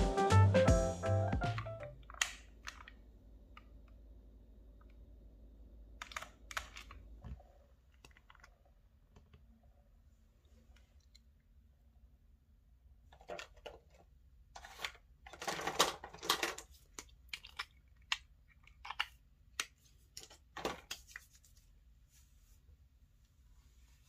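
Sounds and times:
plastic tube clicks and rustles: 6.0 - 9.4, 13.1 - 21.4.

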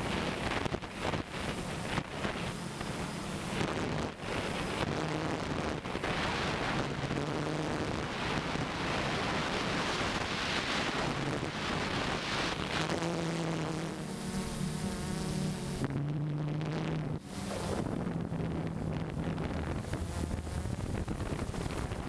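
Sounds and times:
faint hum of drone motors: 0.0 - 22.0
wind buffeting microphone: 17.1 - 22.0.

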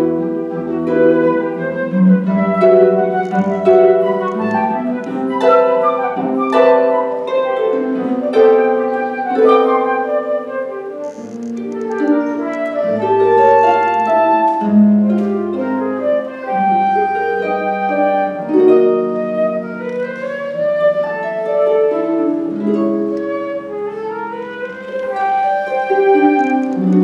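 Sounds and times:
harp plucking chords: 0.0 - 10.5, 24.1 - 27.0
flute melody: 0.0 - 27.0.

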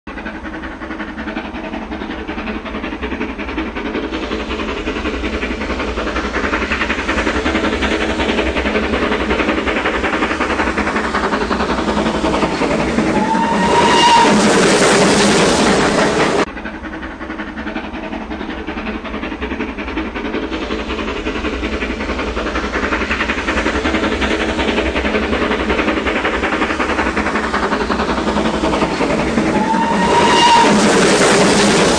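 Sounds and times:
steam locomotive passing: 0.1 - 31.9
train whistle blast: 13.1 - 15.0, 29.4 - 31.5.

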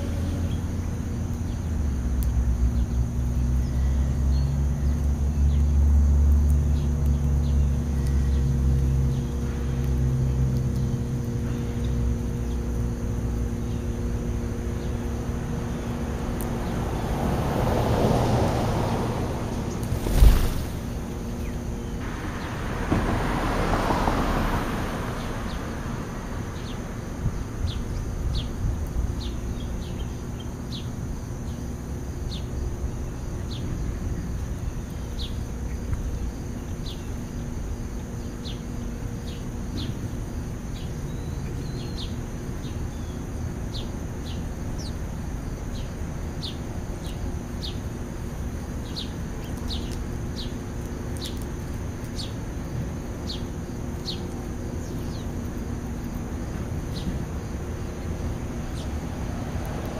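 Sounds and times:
sparrows chirping: 0.0 - 5.9, 6.6 - 17.0, 19.4 - 22.6, 26.5 - 26.8, 27.4 - 31.6, 32.2 - 37.3, 38.1 - 40.1, 40.7 - 47.9, 48.8 - 59.1
low outdoor rumble: 0.0 - 59.9
broad rushing noise: 15.2 - 27.0, 56.3 - 59.9.

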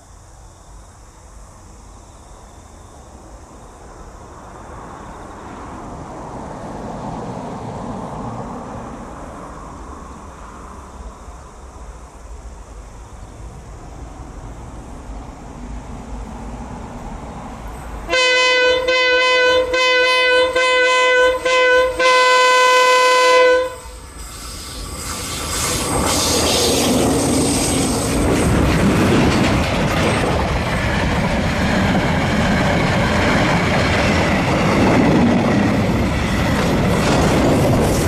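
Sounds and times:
diesel locomotive engine rumble: 0.0 - 38.0
locomotive horn blasts: 18.1 - 24.0.

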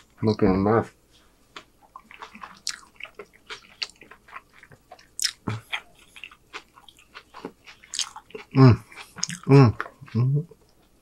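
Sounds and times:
close chewing mouth clicks: 1.8 - 10.2.

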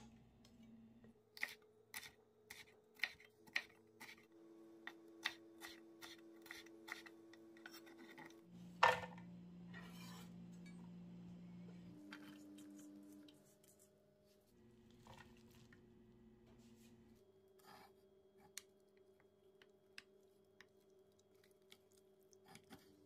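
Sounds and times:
knife blade scraping board: 9.8 - 10.3.

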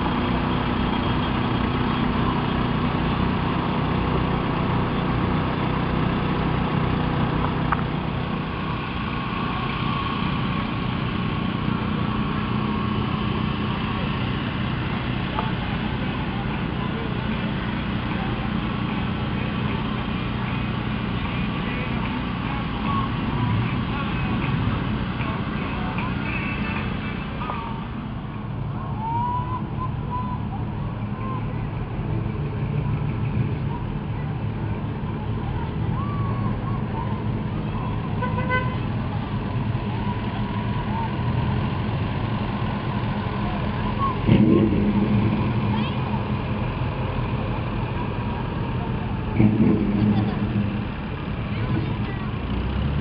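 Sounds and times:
vehicle engine running at low revs: 0.0 - 53.0
vehicle horn toot: 38.2 - 38.9.

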